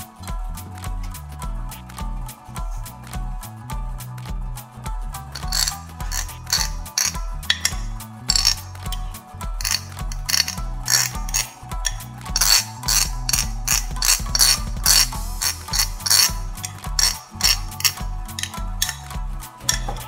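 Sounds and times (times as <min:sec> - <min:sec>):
background music with bass: 0:00.0 - 0:20.0
spoon scraping ceramic grater: 0:05.4 - 0:08.7, 0:09.6 - 0:19.1, 0:19.7 - 0:20.0.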